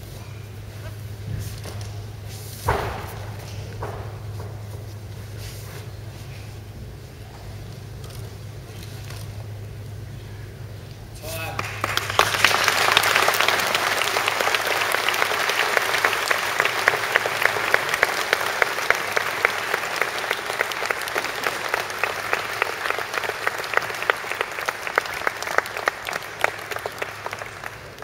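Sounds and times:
audience applauding: 11.4s - 28.0s.

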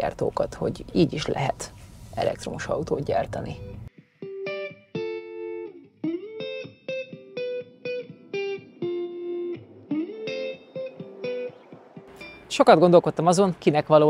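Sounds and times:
guitar plucked notes: 3.6s - 12.8s.

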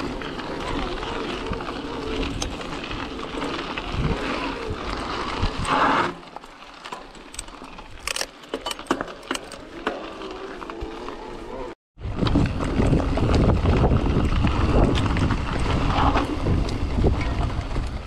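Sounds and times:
bike chain and frame rattling: 0.0s - 11.7s
rush of riding noise: 0.0s - 18.0s.

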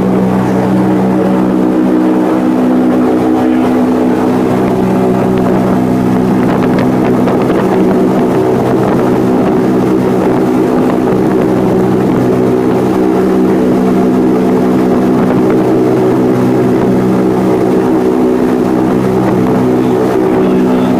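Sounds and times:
blimp engines droning: 0.0s - 20.9s.

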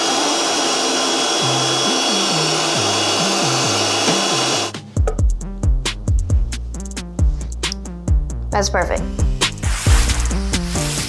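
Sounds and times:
food processor whirring: 0.0s - 4.8s
background music with drum beat: 4.0s - 11.0s.

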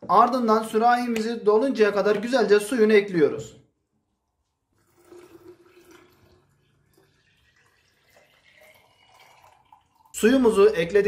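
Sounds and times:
water pouring into glass pitcher: 4.7s - 11.0s.

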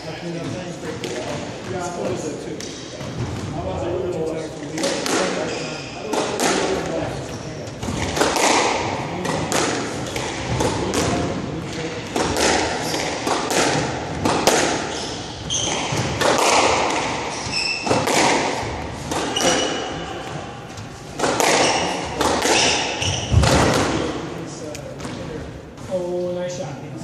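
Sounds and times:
squash ball hits: 4.7s - 7.0s, 7.7s - 25.4s
shoes squeaking on hardwood floor: 5.4s - 6.0s, 14.8s - 16.3s, 17.2s - 18.0s, 19.0s - 23.6s.

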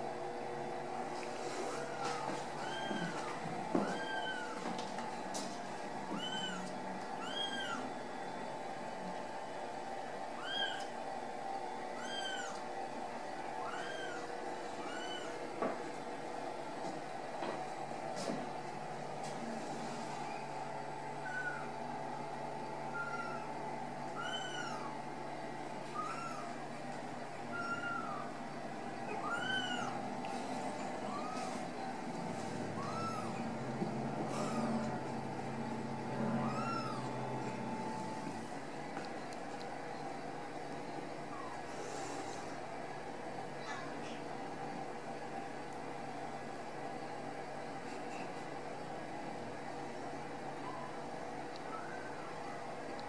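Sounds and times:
steady low hum: 0.0s - 53.0s
kittens mewing: 27.5s - 28.4s, 32.7s - 33.5s.

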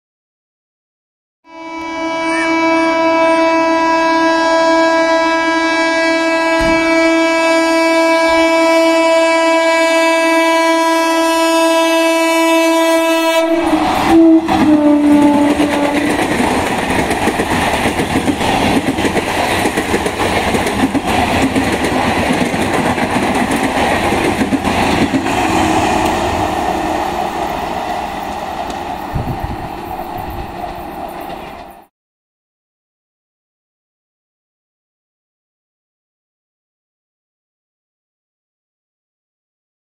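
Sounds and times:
train horn blast: 1.4s - 16.3s, 25.2s - 30.9s
train wheels clattering on rails: 13.8s - 26.2s, 27.1s - 31.9s.

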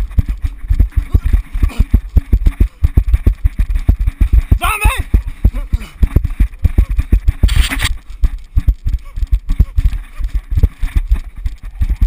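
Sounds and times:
running footsteps on dirt: 0.0s - 12.0s
rush of noise: 6.1s - 8.0s.

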